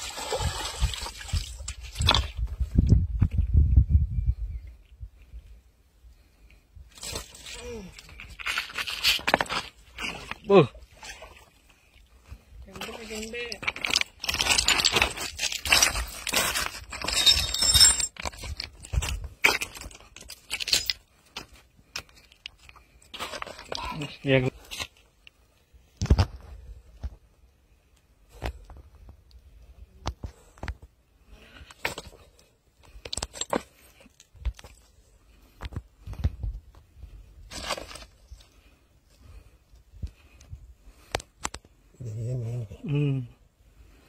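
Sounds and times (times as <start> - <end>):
footsteps on loose stones: 7.0 - 10.5, 12.2 - 25.2, 31.7 - 38.7.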